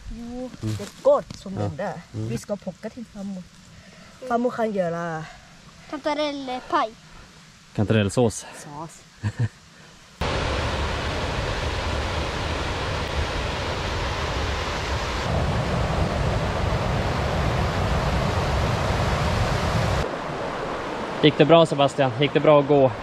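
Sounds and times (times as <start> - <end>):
mountain stream rushing: 10.2 - 23.0.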